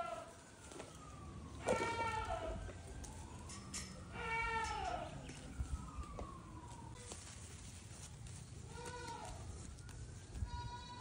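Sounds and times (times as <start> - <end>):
goat kid bleating: 1.6 - 2.6, 4.1 - 5.1, 8.7 - 9.4, 10.4 - 11.0.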